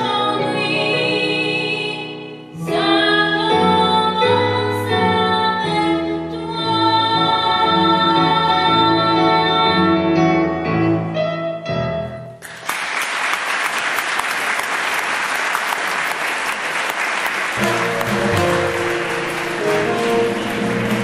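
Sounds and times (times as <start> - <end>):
audience applauding: 12.4 - 21.0
song with held notes: 17.6 - 21.0.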